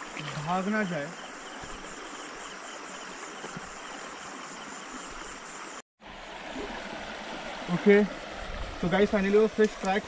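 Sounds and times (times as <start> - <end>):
crickets trilling: 0.0 - 5.8
stream flowing: 0.0 - 10.0.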